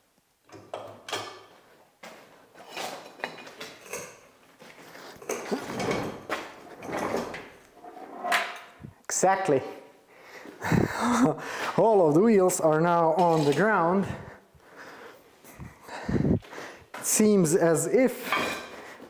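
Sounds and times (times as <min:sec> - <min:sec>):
metal clunks and scrapes: 0:05.2 - 0:08.8.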